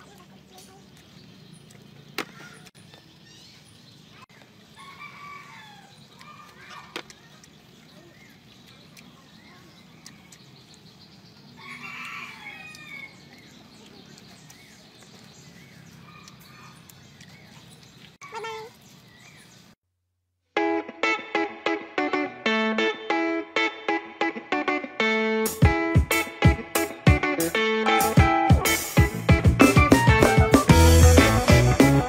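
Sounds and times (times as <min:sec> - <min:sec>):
rooster crowing: 0:04.8 - 0:06.5, 0:11.6 - 0:13.2.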